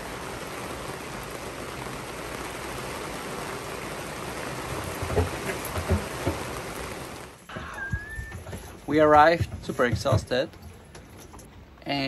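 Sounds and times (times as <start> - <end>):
heavy rain on a boat and sea: 0.0 - 12.0.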